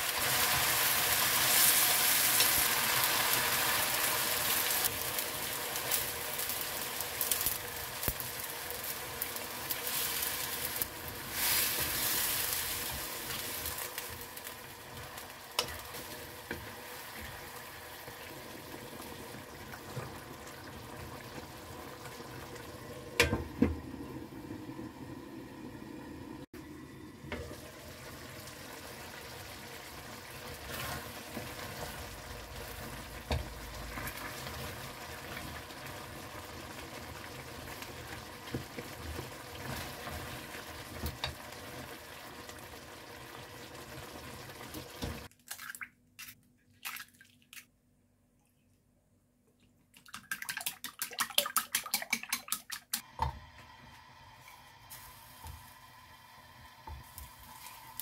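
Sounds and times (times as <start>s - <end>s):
butter hissing in frying pan: 0.0s - 17.2s, 53.7s - 58.0s.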